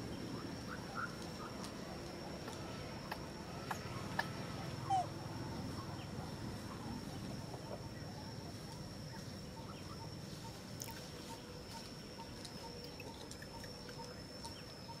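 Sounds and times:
faint chirps: 0:00.0 - 0:15.0
insect chorus high drone: 0:00.0 - 0:15.0
low pulsing insect note: 0:00.0 - 0:15.0.

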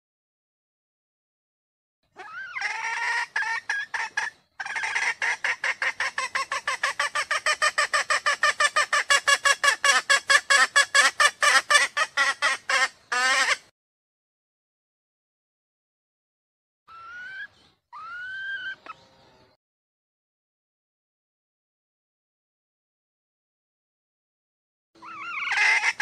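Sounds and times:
hen clucking call: 0:02.2 - 0:13.7, 0:16.9 - 0:19.0, 0:25.0 - 0:26.0.

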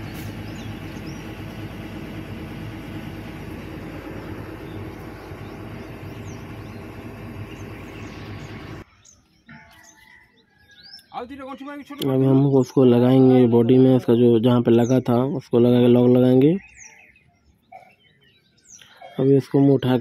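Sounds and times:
engine idling: 0:00.0 - 0:08.9.

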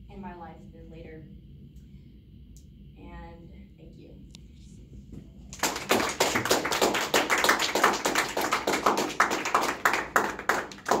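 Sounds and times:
people applauding: 0:05.5 - 0:11.0.

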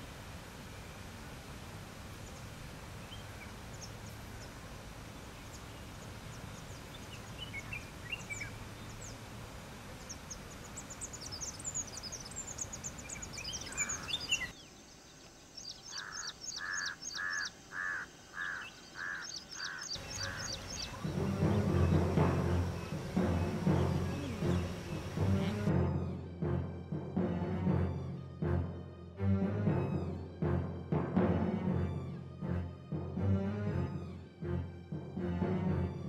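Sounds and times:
steady background hiss: 0:00.0 - 0:26.3
songbirds chirping: 0:00.0 - 0:36.0
bird call notes: 0:10.1 - 0:14.6, 0:15.8 - 0:25.9.

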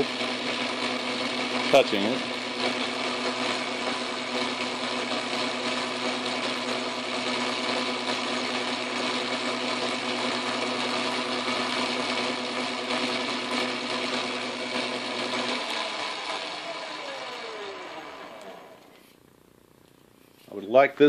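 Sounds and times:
metal lathe whirring: 0:00.0 - 0:19.2.

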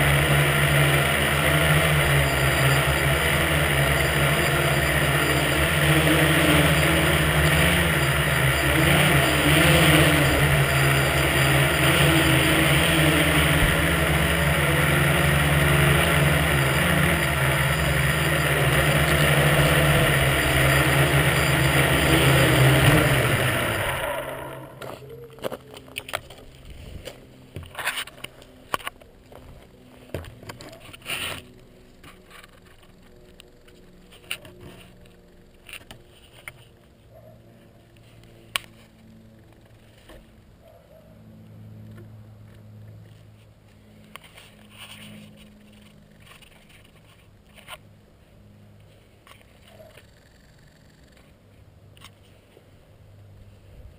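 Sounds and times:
drone motors buzzing: 0:00.0 - 0:36.9.

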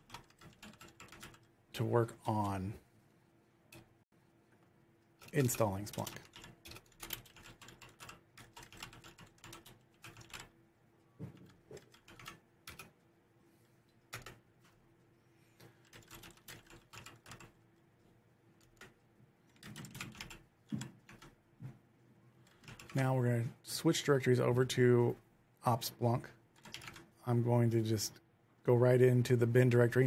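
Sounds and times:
typing on computer keyboard: 0:00.0 - 0:01.5, 0:05.2 - 0:10.6, 0:11.4 - 0:13.0, 0:14.1 - 0:14.4, 0:15.8 - 0:17.6, 0:18.6 - 0:21.4, 0:22.4 - 0:23.0, 0:26.6 - 0:27.1.

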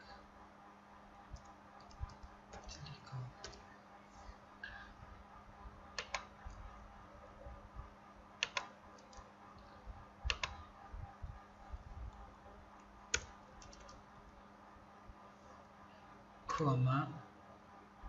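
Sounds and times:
faint steady hum: 0:00.0 - 0:18.0
keyboard keystrokes: 0:01.4 - 0:02.7, 0:06.0 - 0:06.6, 0:08.4 - 0:09.3, 0:10.2 - 0:10.6, 0:13.1 - 0:14.0
mouse clicks: 0:06.0 - 0:06.6, 0:08.4 - 0:09.3, 0:10.2 - 0:10.6.

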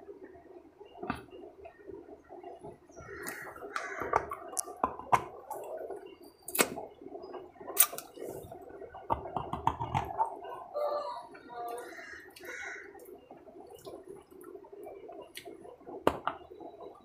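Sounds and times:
sharp clicks and crunches: 0:07.7 - 0:08.2.

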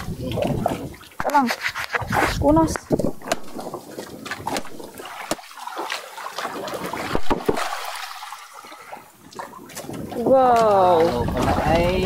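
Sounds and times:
water splashing and trickling: 0:00.0 - 0:12.0
sharp knocks: 0:07.1 - 0:07.7.

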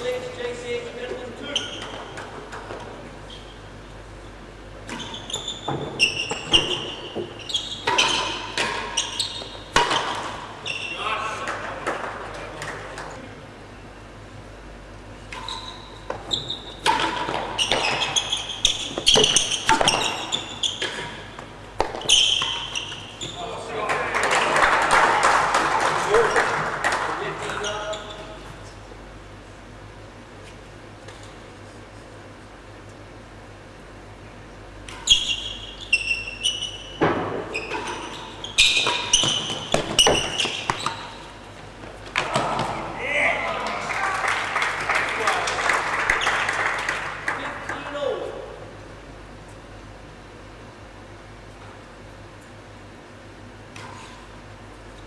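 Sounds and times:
shoes squeaking on court: 0:01.1 - 0:11.6, 0:15.2 - 0:23.7, 0:27.4 - 0:28.8, 0:34.8 - 0:42.8
ball knocking off rackets and walls: 0:38.6 - 0:41.0.

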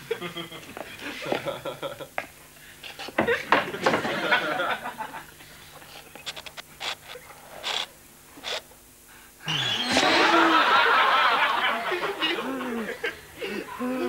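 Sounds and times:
audience laughing: 0:03.3 - 0:05.3, 0:09.5 - 0:14.0.

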